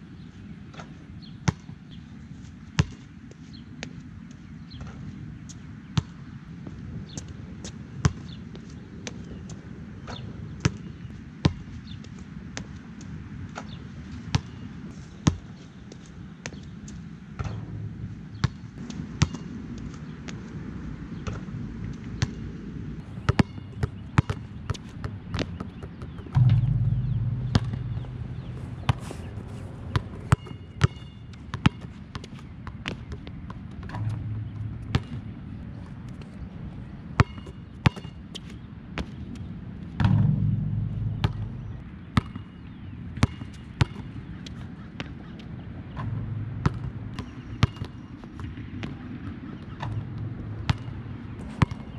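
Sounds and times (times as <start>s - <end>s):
steady low hum: 23.0s - 31.4s, 33.8s - 35.8s, 40.0s - 43.2s, 46.0s - 47.7s
basketball bouncing: 23.0s - 32.2s, 33.8s - 35.4s, 40.0s - 44.0s, 45.9s - 48.5s
loud low rumble: 26.3s - 30.3s, 33.9s - 35.6s, 40.0s - 42.8s, 46.0s - 47.2s.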